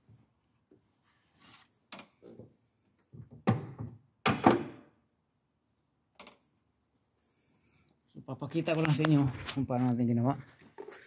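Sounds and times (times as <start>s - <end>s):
knocks and thunks: 3.2s - 4.8s.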